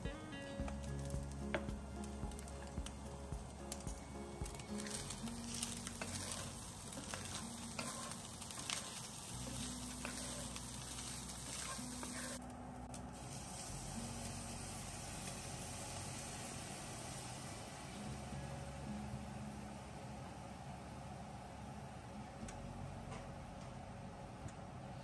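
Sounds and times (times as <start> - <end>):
chicken sizzling in skillet: 0.6 - 20.9
wooden spatula scraping pan: 4.8 - 12.4.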